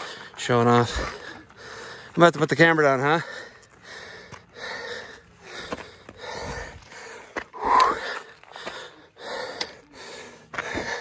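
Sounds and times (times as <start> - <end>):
person breathing hard: 0.0 - 2.2, 3.2 - 11.0
footsteps scuffing on dirt: 5.5 - 8.9, 10.4 - 11.0.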